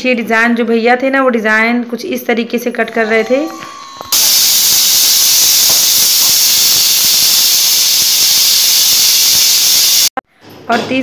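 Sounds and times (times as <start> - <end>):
pressure cooker hissing steam: 4.1 - 10.1.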